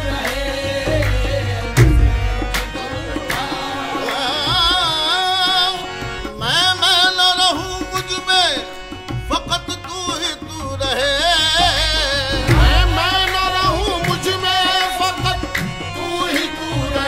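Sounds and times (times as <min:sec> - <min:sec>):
harmonium: 0:00.0 - 0:17.0
men singing ornamented notes: 0:00.0 - 0:17.0
tabla strokes: 0:12.2 - 0:15.8.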